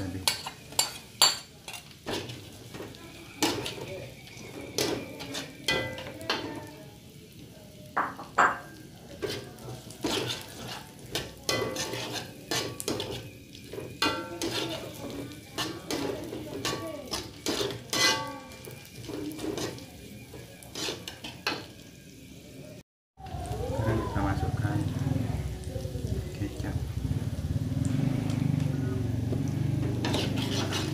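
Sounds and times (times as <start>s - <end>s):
metal spatula scraping a wok: 0.0s - 6.6s, 9.2s - 21.8s, 29.8s - 30.9s
oil sizzling: 0.0s - 30.9s.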